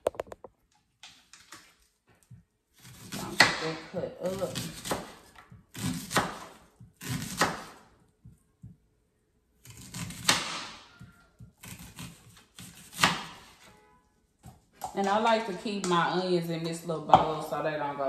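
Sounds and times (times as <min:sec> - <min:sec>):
knife slicing onion: 0:02.8 - 0:07.9, 0:09.6 - 0:13.8.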